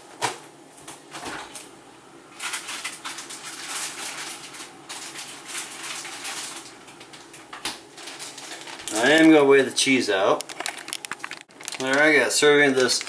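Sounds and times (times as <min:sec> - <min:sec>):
plastic bag crinkling: 0:02.4 - 0:06.8, 0:07.9 - 0:13.0.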